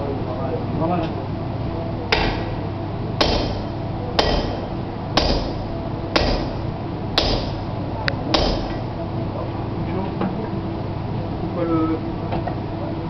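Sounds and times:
sledgehammer clanging on anvil: 3.2s - 5.6s, 8.3s - 8.8s.

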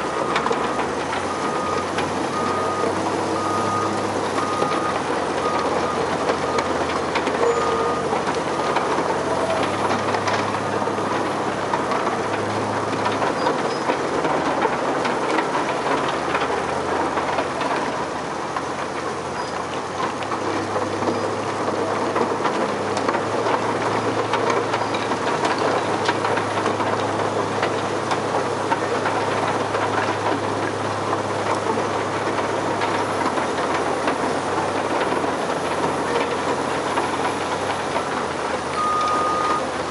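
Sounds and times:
diesel engine humming: 0.0s - 39.9s
wheel loader diesel engine: 0.0s - 39.9s
reversing alarm beeping: 0.2s - 6.8s, 7.4s - 9.5s, 38.1s - 39.7s.

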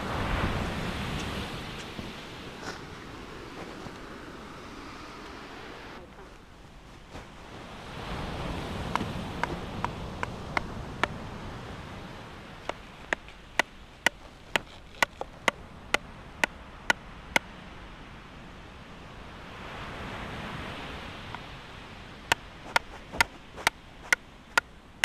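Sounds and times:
surf: 0.0s - 25.0s
wind: 0.0s - 25.0s
sharp knocks: 22.3s - 24.7s.

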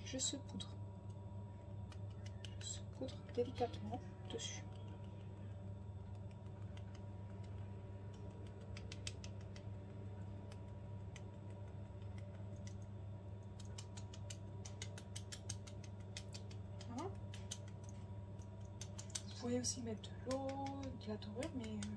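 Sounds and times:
low hum: 0.0s - 21.9s.

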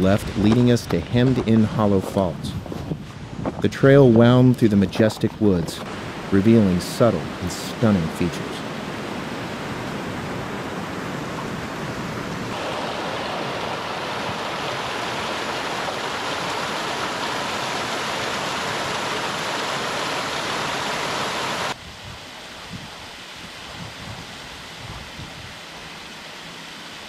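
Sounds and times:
creek water rushing over rocks: 4.9s - 21.8s.

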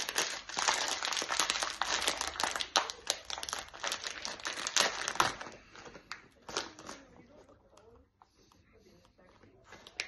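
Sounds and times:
snack packet tearing and crackling: 0.0s - 7.4s.

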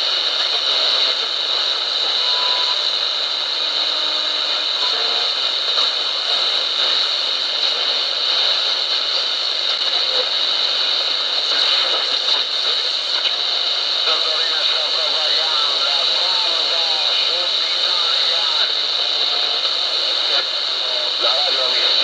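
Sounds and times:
radio static hiss: 0.0s - 22.0s
faint short radio whistles: 2.0s - 3.0s.

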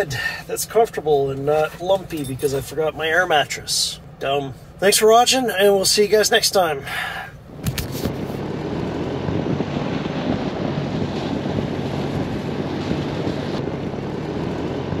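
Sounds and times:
vehicle engine droning: 6.9s - 15.0s
wind buffeting microphone: 7.5s - 15.0s.

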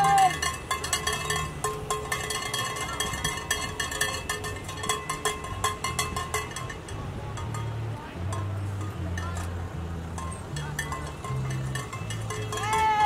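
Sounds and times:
metallic clanking: 0.0s - 13.0s
music with low bass: 0.0s - 13.0s.

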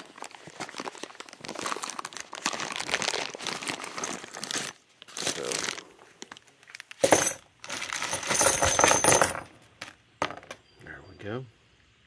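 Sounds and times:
packing material crinkling: 0.0s - 7.0s, 7.6s - 8.3s.

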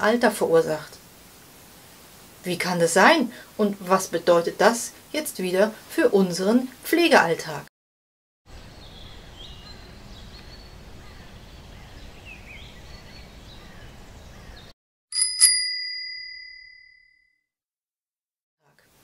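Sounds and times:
birds chirping: 8.5s - 14.7s
bicycle bell ringing: 15.1s - 17.3s.

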